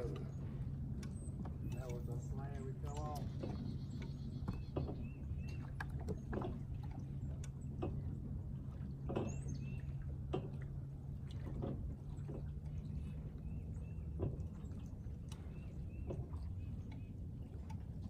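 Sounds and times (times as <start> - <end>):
steady low hum: 0.0 - 18.0
waves lapping against boat hull: 0.0 - 18.0.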